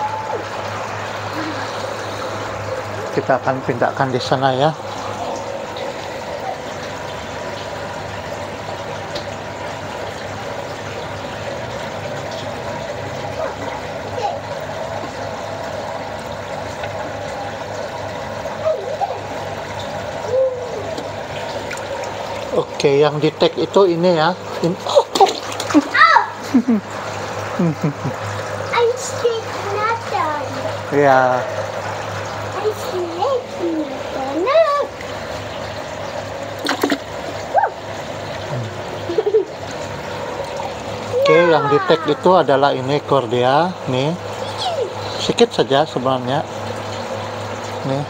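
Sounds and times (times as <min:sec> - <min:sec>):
sharp water splashes: 0:00.0 - 0:48.0
steady hum: 0:00.0 - 0:48.0
trickle of water: 0:00.0 - 0:48.0
water sloshing in a plastic bucket: 0:11.5 - 0:47.9.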